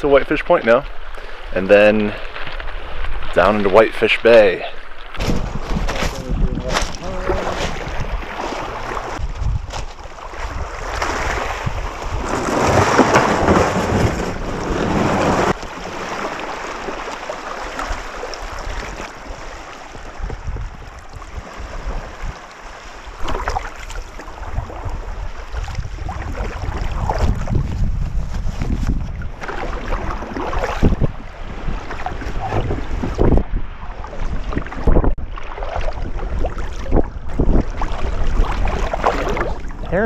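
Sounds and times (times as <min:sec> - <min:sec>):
wind buffeting microphone: 0:05.2 - 0:15.6, 0:18.5 - 0:22.4, 0:24.3 - 0:40.0
small waves lapping on cobbles: 0:09.9 - 0:27.5.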